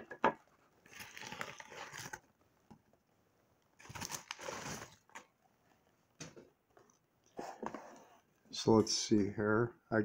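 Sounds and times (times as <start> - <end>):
packaging rustling: 0.8 - 2.3, 3.8 - 5.3.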